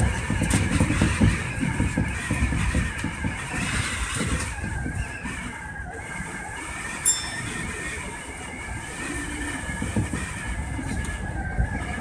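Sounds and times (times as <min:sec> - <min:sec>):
train wheels rumbling on rail: 0:00.0 - 0:12.0
wavering high whine: 0:04.4 - 0:12.0.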